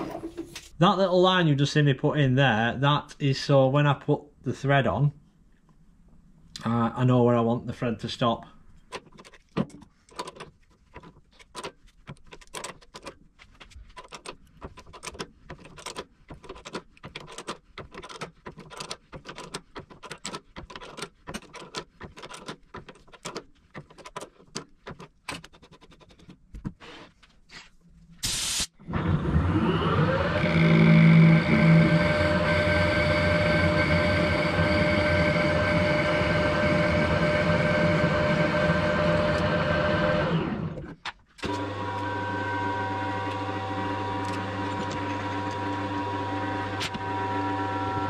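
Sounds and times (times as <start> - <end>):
lathe motor humming: 28.9 - 48.0.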